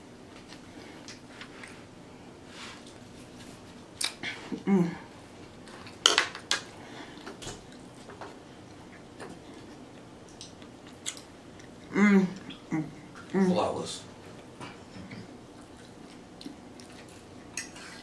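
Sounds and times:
person humming: 0:04.2 - 0:05.1, 0:11.9 - 0:13.0.

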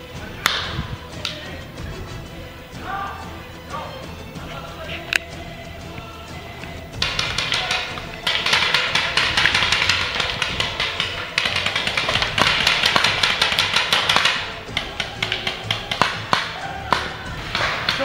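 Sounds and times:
background music: 0:00.0 - 0:18.0
rapid sharp clicks and taps: 0:06.6 - 0:18.0.

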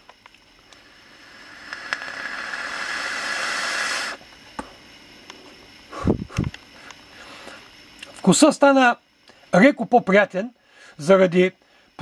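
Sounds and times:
air hissing through vape tank: 0:00.0 - 0:07.9.

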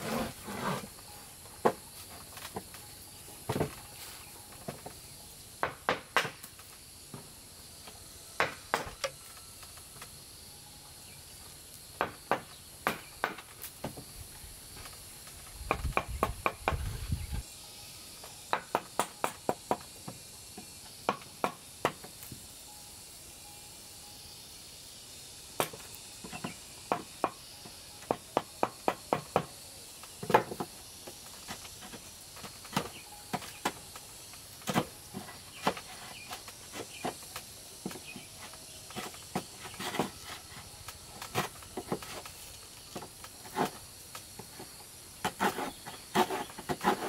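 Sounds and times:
insects droning: 0:00.0 - 0:47.0
hand tools knocking on wood: 0:26.2 - 0:27.4, 0:28.1 - 0:29.5.

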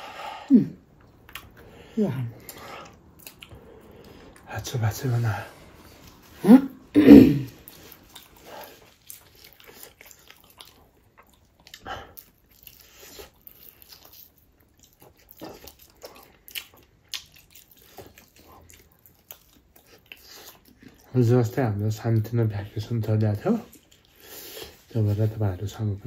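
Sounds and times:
person chewing food: 0:00.8 - 0:04.5, 0:07.4 - 0:21.1, 0:23.6 - 0:24.9.

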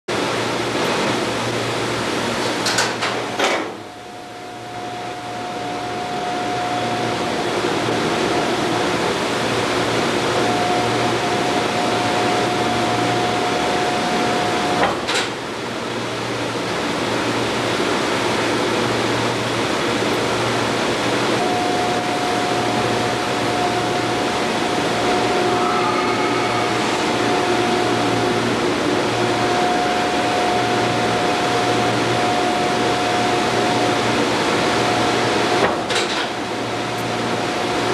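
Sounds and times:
high whine of cable drum: 0:00.1 - 0:37.9
hoist machinery humming: 0:19.7 - 0:37.4.

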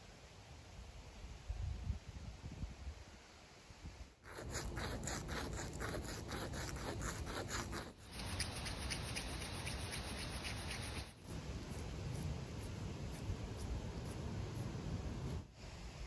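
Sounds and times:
needle tip rubbing rough stone: 0:04.2 - 0:11.3
needle scraping on concrete: 0:04.3 - 0:11.2.

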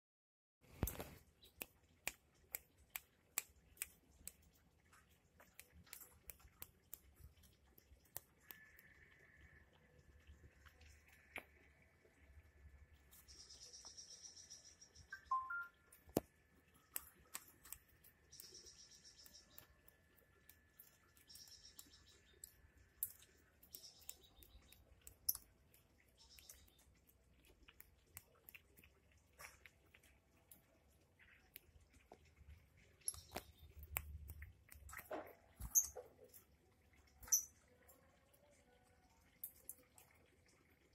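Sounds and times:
sharp dry clicks: 0:15.9 - 0:31.8.

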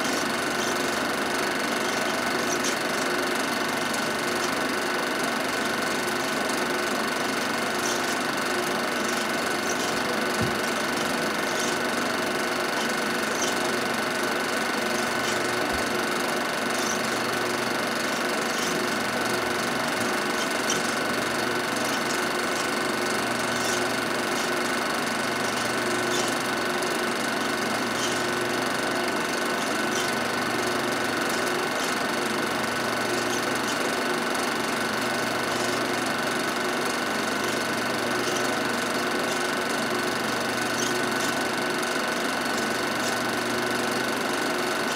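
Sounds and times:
film projector whirring and clattering: 0:00.0 - 0:44.9
thin hum: 0:07.3 - 0:26.6.

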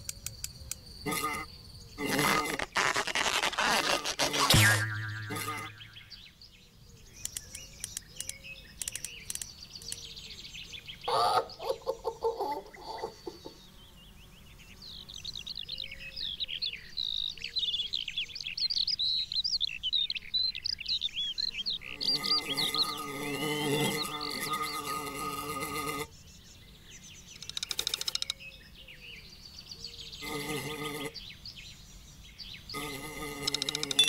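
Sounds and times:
birds chirping quickly: 0:00.0 - 0:12.0, 0:12.6 - 0:34.0
cartoon insect ticks and squeaks: 0:00.1 - 0:05.8, 0:27.4 - 0:28.4, 0:32.8 - 0:34.0
insect buzzing burst: 0:01.1 - 0:06.0.

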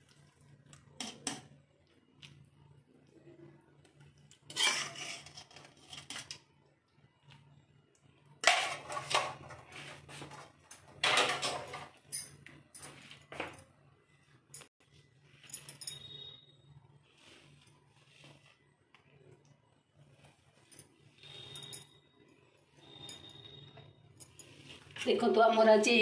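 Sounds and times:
pots and dishes clattering: 0:10.4 - 0:12.2.

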